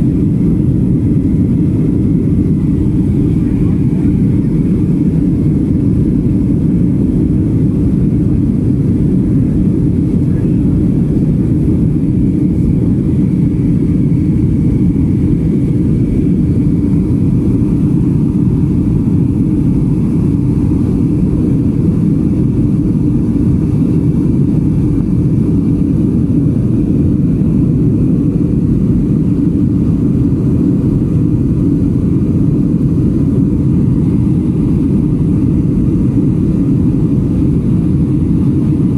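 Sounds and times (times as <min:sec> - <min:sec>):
jet engine rumble: 0:00.0 - 0:38.9.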